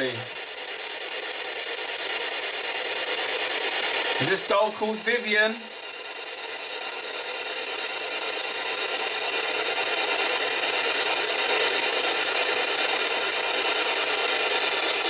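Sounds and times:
radio static hiss: 0.0s - 0.3s, 4.1s - 5.7s.

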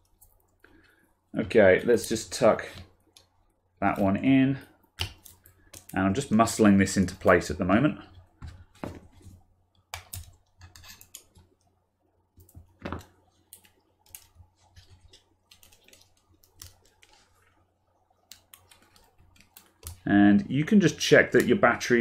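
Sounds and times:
fingers tapping battery cells: 5.0s - 6.0s.

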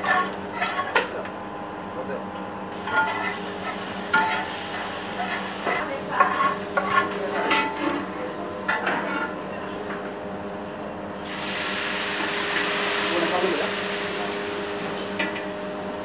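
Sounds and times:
metal paddle scraping a pot: 0.0s - 1.0s, 2.9s - 8.1s, 8.7s - 9.4s
spices sizzling in hot oil: 2.7s - 7.2s, 11.1s - 16.0s
steam hissing: 11.1s - 15.2s.

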